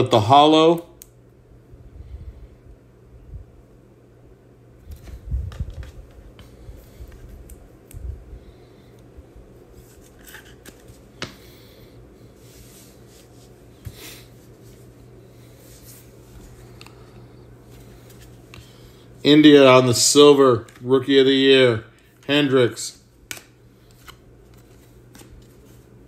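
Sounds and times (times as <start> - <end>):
trading cards rustling and sliding: 4.9 - 7.8, 9.6 - 11.4, 12.3 - 19.6, 23.3 - 26.0.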